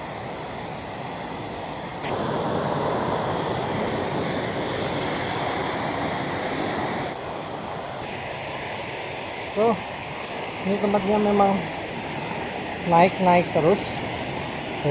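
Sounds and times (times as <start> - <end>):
waterfall rushing: 0.0 - 14.9.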